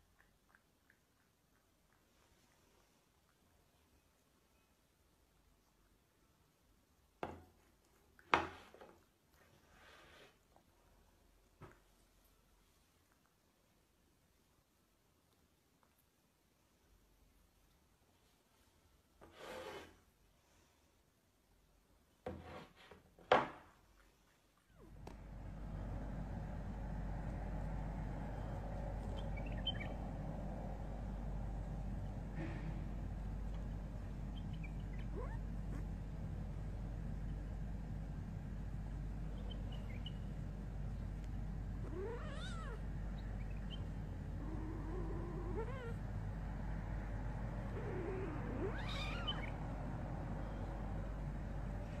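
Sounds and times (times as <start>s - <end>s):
steady low hum: 24.7s - 52.0s
kitten mewing: 34.9s - 35.9s, 41.8s - 42.9s, 44.3s - 46.0s, 47.7s - 49.6s.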